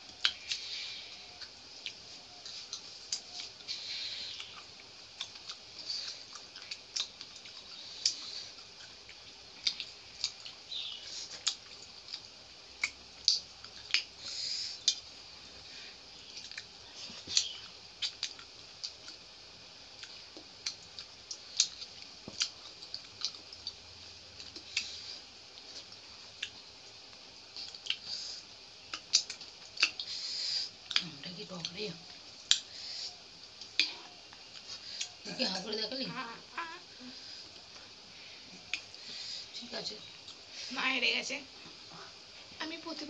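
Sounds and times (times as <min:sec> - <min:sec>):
chewing smacks: 0:00.0 - 0:15.1, 0:16.2 - 0:19.3, 0:19.9 - 0:35.2.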